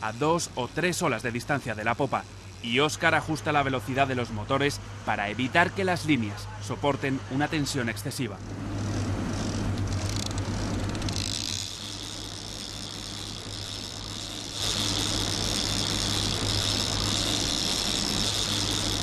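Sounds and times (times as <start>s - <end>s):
fishing reel clicker buzzing: 0.0s - 3.5s, 8.4s - 19.0s
motor boat engines running: 0.0s - 19.0s.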